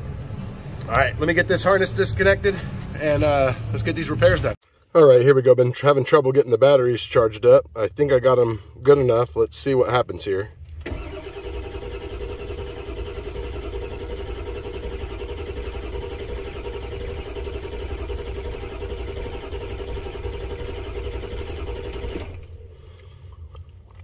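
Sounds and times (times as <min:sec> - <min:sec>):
diesel engine cranking on starter: 0:10.6 - 0:23.2.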